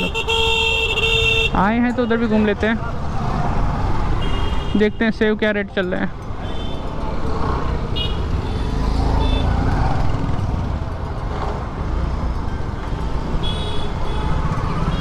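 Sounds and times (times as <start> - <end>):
road noise: 0.0 - 15.0.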